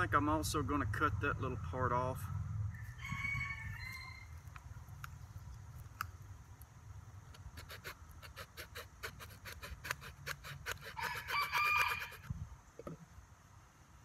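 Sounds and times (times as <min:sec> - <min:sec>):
rooster crowing: 0:02.7 - 0:04.4, 0:10.9 - 0:12.3
hand saw cutting wood: 0:07.3 - 0:12.3.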